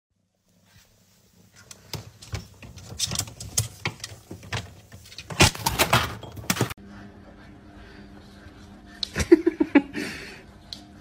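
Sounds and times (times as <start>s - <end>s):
refrigerator shelves clattering: 1.8s - 6.8s.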